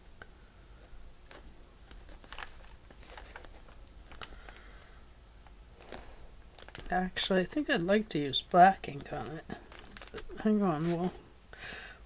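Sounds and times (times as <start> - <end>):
soft paper rustling: 0.8 - 5.0, 5.8 - 7.2, 8.4 - 11.2.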